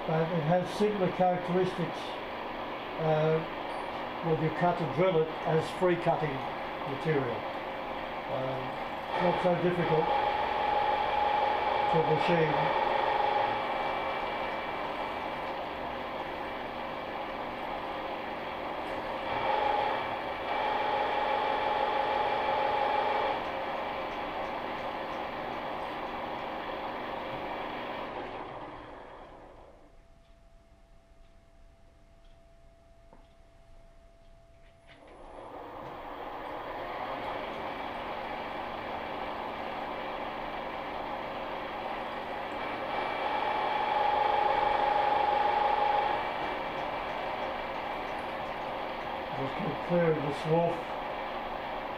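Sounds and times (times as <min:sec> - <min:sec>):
milling machine spindle whine: 0:00.0 - 0:29.9, 0:35.0 - 0:51.9
drill bit cutting steel: 0:08.6 - 0:16.4, 0:19.1 - 0:28.4, 0:41.4 - 0:51.9
drill cutting steel: 0:09.1 - 0:14.8.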